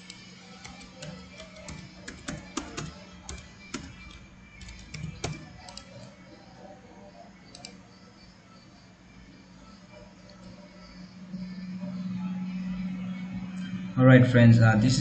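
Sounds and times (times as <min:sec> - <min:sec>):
computer keyboard typing: 0:00.0 - 0:06.2, 0:07.5 - 0:07.8
steady low hum: 0:00.0 - 0:15.0.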